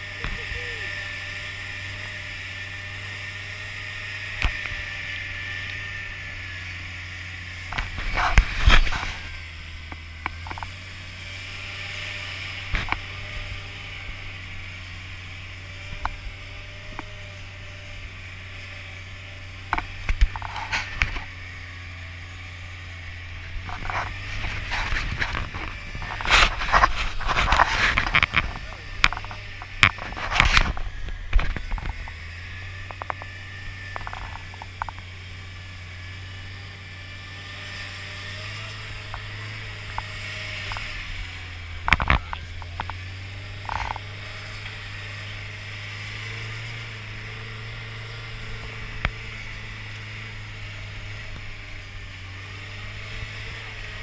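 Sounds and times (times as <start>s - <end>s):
car engine running low: 0.0s - 54.0s
knocks and clatters: 41.8s - 44.7s.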